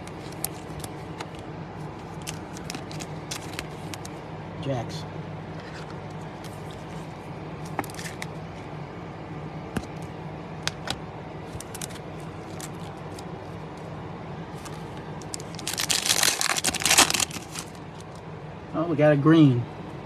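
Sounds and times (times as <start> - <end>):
steady low hum: 0.0 - 20.0
foil wrapper tearing: 2.2 - 4.1, 11.6 - 13.2, 14.6 - 18.0.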